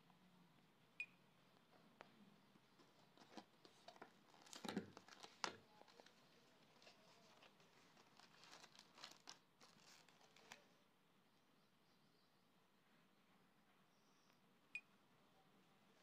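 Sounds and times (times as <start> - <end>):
cardboard box rustling and crinkling: 2.8 - 10.6.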